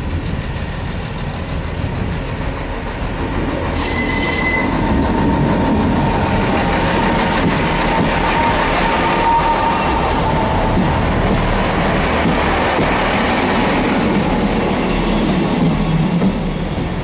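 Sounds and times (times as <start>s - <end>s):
diesel train passing: 0.0s - 17.0s
train wheels on rails: 0.0s - 17.0s.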